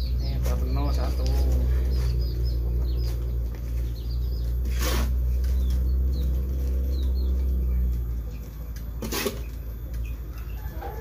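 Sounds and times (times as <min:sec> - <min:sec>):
small birds chirping: 0:00.0 - 0:11.0
steady low hum: 0:00.0 - 0:11.0.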